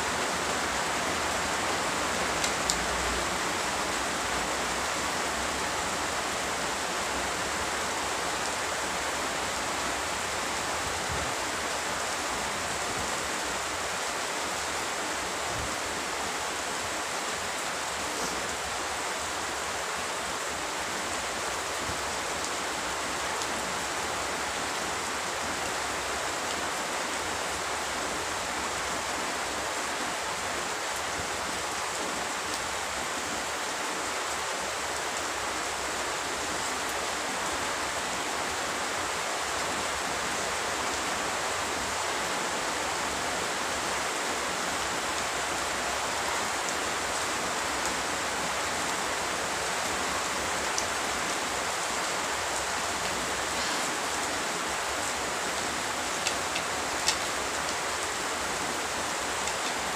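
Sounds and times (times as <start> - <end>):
steady rain: 0.0 - 59.9.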